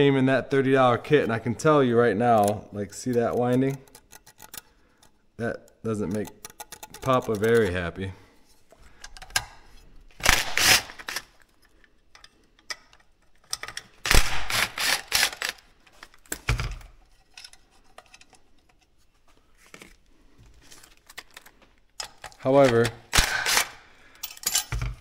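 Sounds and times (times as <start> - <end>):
rustling and clicking of wires: 2.2 - 14.0, 15.3 - 23.0.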